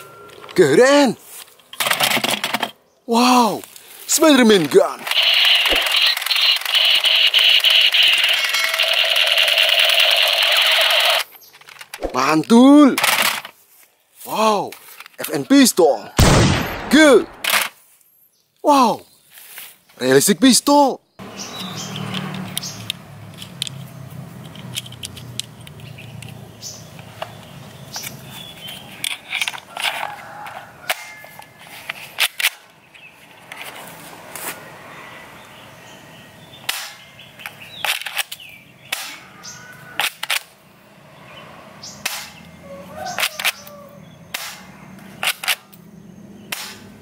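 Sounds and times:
cartridges clicking into magazine: 36.7s - 39.2s, 45.2s - 45.8s.

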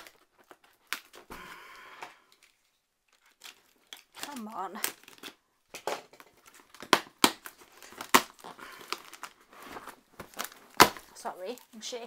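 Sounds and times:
packing tape crackling and tearing: 0.0s - 12.0s
cardboard snapping and knocking: 3.4s - 11.1s.

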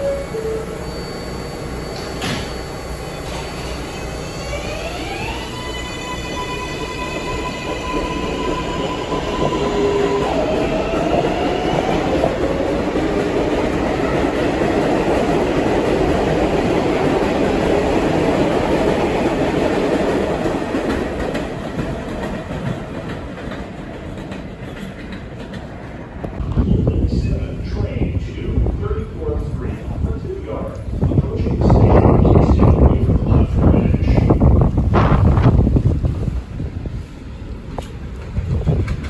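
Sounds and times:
train cars running on track: 0.0s - 39.0s
electric motors whining: 0.5s - 10.2s.

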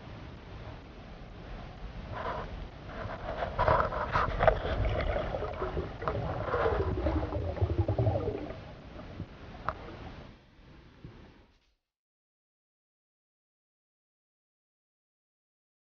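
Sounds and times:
muffled underwater rumble: 0.5s - 10.4s
water gurgling: 3.0s - 10.1s.

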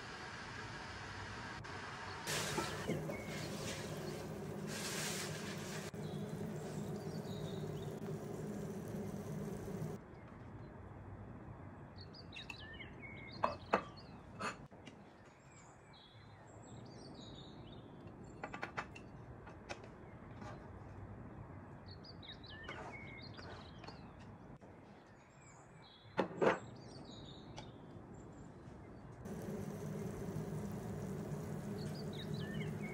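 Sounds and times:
small birds chirping: 2.3s - 10.0s, 29.3s - 32.9s
low background hiss: 29.3s - 32.9s.

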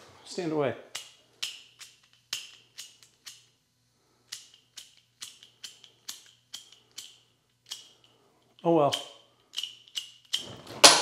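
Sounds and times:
lighter flint wheel strikes: 0.9s - 3.5s, 4.3s - 8.1s.

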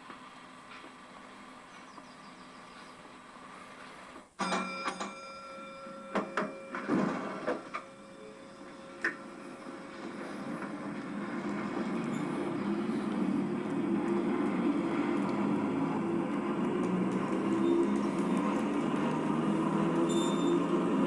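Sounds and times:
irregular clicks of railcar: 0.0s - 21.0s
model train hum: 0.0s - 21.0s
model train motor whine: 0.0s - 21.0s.

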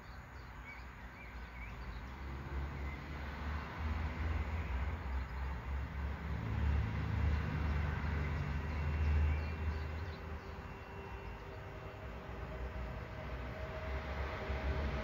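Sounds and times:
distant train approaching: 6.6s - 15.0s.

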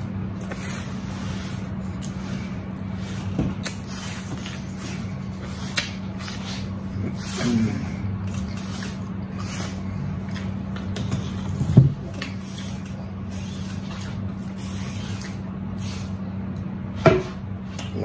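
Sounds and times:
steady low hum: 0.0s - 18.0s
chewing: 8.2s - 13.0s.

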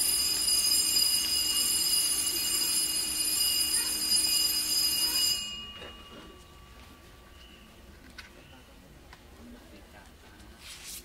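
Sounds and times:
electric bell ringing: 0.0s - 8.0s.

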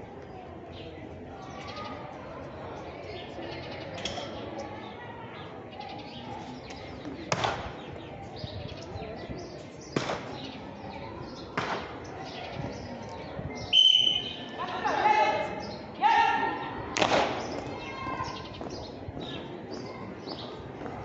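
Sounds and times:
murmuring crowd: 0.0s - 21.0s
birds chirping: 0.6s - 20.8s
sharp slaps: 7.3s - 7.8s, 9.9s - 10.6s, 11.5s - 12.1s, 17.0s - 17.6s.

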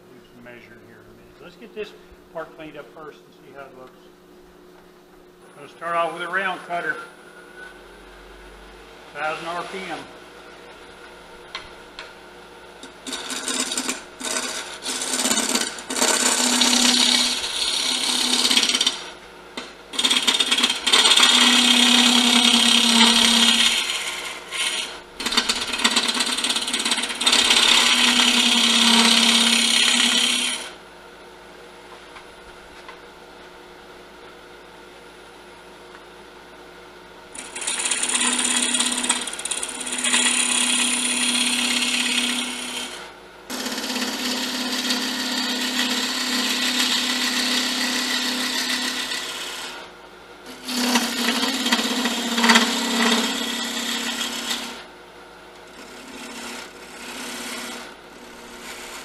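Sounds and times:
cutter scraping wood: 12.8s - 30.8s, 37.4s - 49.8s, 50.5s - 54.9s, 55.6s - 59.0s
wood lathe motor hum: 12.8s - 30.8s, 37.3s - 54.9s, 55.6s - 59.0s.

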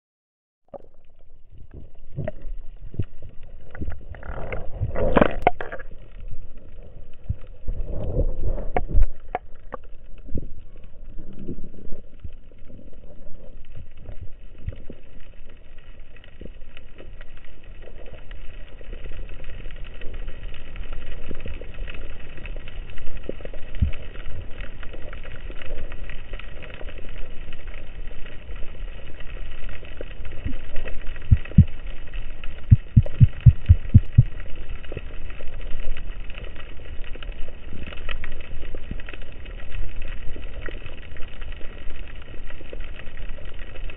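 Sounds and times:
muffled underwater rush: 0.7s - 43.9s
knocks and clicks: 32.7s - 34.3s.

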